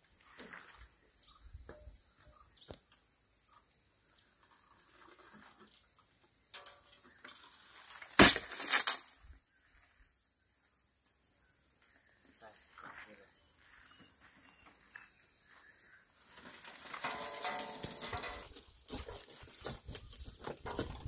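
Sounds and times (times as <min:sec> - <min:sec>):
broken glass crunching: 0:07.8 - 0:09.2, 0:16.6 - 0:19.1.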